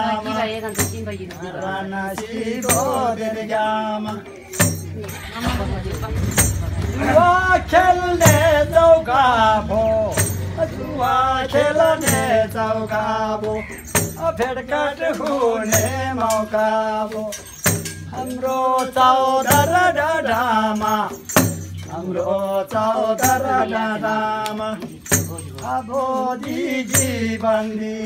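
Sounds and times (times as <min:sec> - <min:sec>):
frame drum: 0:00.0 - 0:28.0
men singing folk song: 0:00.0 - 0:28.0
hand claps: 0:13.4 - 0:21.6, 0:23.2 - 0:27.7.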